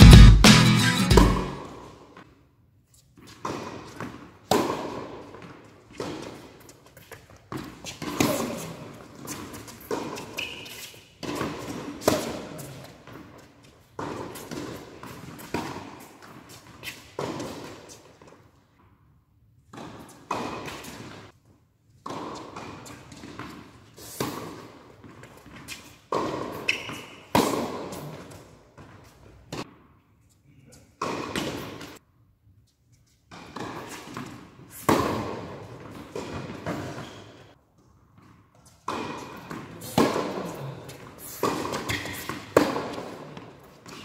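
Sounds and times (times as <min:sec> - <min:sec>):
tennis racket strikes: 0:00.0 - 0:01.9, 0:33.3 - 0:37.0, 0:38.8 - 0:40.5, 0:41.2 - 0:43.2
shoes squeaking on court: 0:01.2 - 0:18.9, 0:19.6 - 0:21.4, 0:22.0 - 0:32.0, 0:32.7 - 0:44.0
tennis ball bounces: 0:03.2 - 0:13.3, 0:13.9 - 0:18.3, 0:19.7 - 0:21.2, 0:22.0 - 0:29.9, 0:31.0 - 0:32.0, 0:33.3 - 0:44.0.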